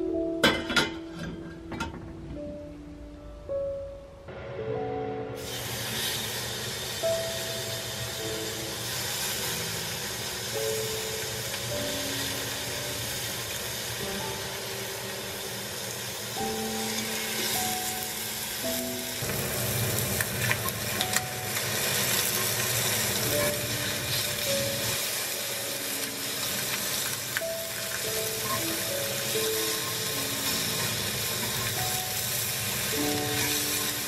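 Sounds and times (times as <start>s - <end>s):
soft background music: 0.0s - 34.0s
meat sizzling in a pan: 5.4s - 34.0s.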